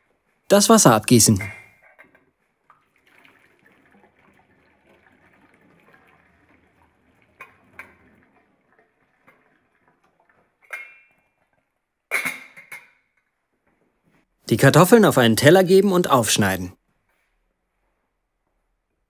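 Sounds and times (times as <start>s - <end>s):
water draining into a steel sink: 1.9s - 13.0s.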